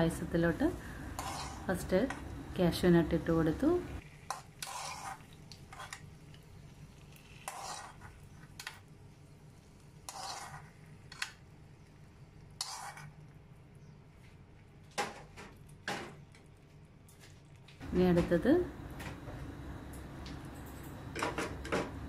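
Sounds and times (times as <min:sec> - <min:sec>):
metal spoon scraping cooking pot: 0:01.2 - 0:01.7, 0:04.3 - 0:06.0, 0:07.4 - 0:08.2, 0:10.1 - 0:11.3, 0:12.6 - 0:13.1.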